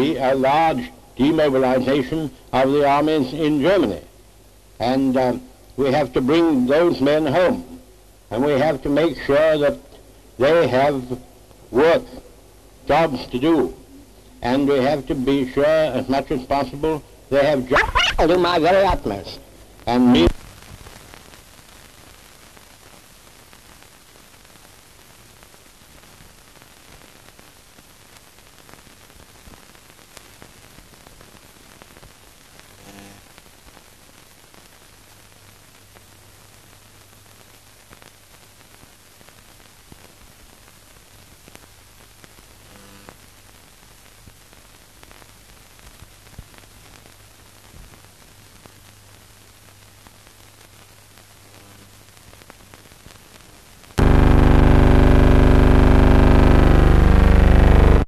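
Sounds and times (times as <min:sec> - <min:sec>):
film soundtrack hiss and crackle: 0:00.0 - 0:58.0
low hum: 0:54.0 - 0:58.0.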